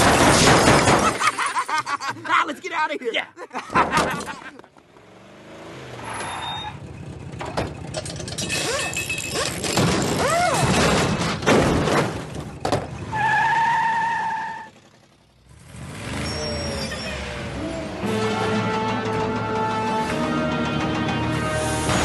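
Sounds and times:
cartoon car engine noise: 0:03.7 - 0:11.5, 0:12.6 - 0:20.1.

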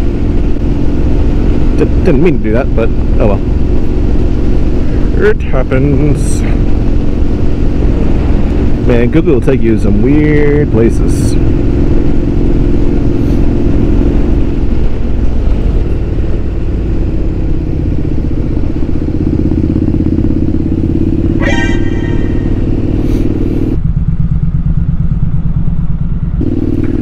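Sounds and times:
motorcycle engine running: 0:00.0 - 0:27.0
short high-pitched sound: 0:21.4 - 0:22.9.

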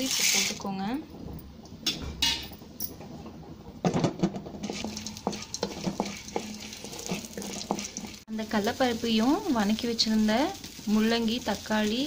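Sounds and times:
lentils sizzling in oil: 0:00.0 - 0:00.8, 0:04.6 - 0:12.0
wooden spatula scraping a pan: 0:04.6 - 0:08.3.

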